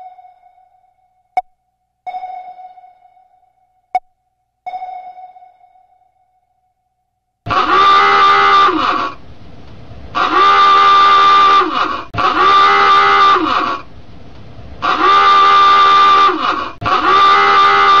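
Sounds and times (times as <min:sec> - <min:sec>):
klaxon alarm horn blasts: 0:07.5 - 0:09.2, 0:10.1 - 0:13.9, 0:14.8 - 0:18.0.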